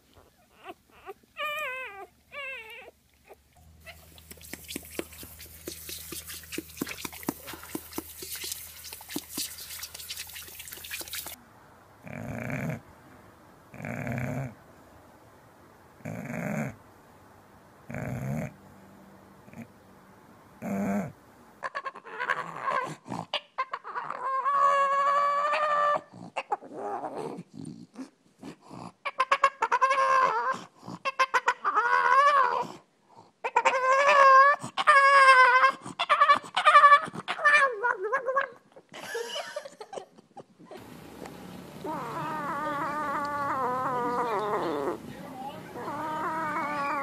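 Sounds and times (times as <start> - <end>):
dog whining and howling: 0.2 - 3.0, 23.6 - 27.3, 29.1 - 32.8, 33.4 - 38.6, 41.8 - 45.0, 45.8 - 47.0.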